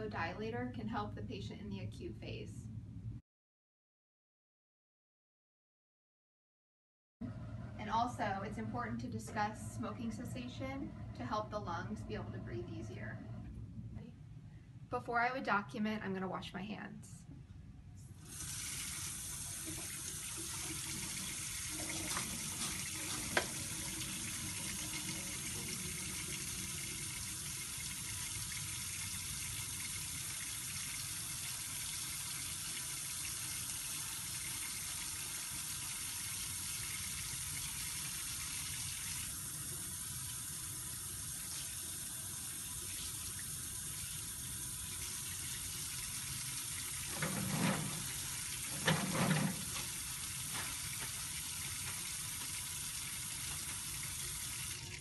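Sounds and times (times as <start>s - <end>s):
faucet water running into sink: 18.2s - 55.0s.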